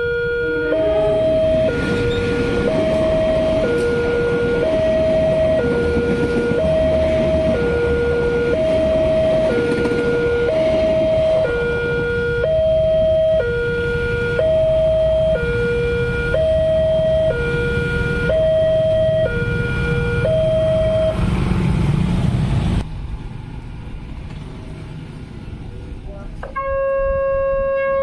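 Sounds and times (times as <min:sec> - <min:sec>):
two-tone crossing alarm: 0:00.0 - 0:21.4, 0:26.4 - 0:28.0.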